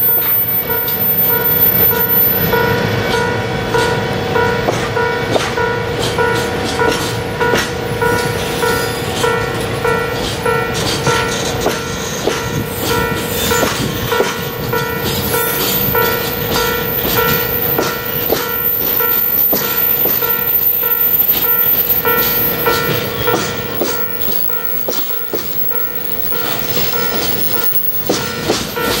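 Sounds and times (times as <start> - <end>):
repeating electronic beep: 0.0 - 2.5, 14.7 - 29.0
freight train rolling past: 0.0 - 29.0
wheels clicking over rail joints: 9.2 - 29.0.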